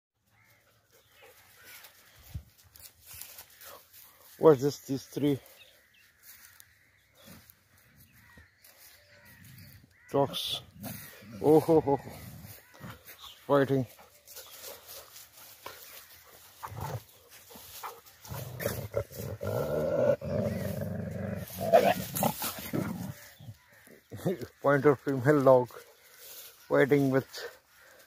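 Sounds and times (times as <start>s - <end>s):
dogs growling: 16.1s - 24.0s.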